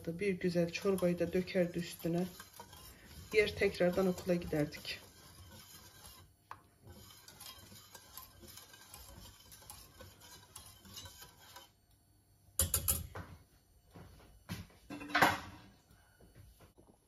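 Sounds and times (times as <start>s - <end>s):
whisk clinking against pot: 0.0s - 11.8s, 12.6s - 13.1s
whisk scraping metal pot: 0.0s - 11.9s.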